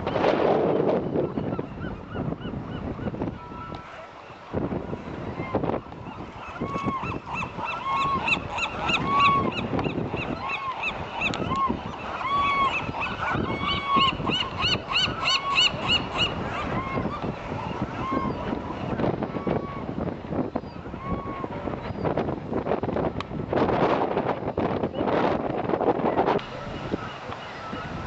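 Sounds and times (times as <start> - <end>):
flock of birds honking: 5.3 - 19.8.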